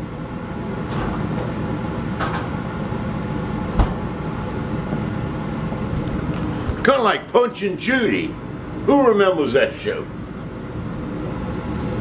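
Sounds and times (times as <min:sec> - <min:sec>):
steady hum: 0:00.0 - 0:12.0
refrigerator door opening: 0:03.6 - 0:04.2.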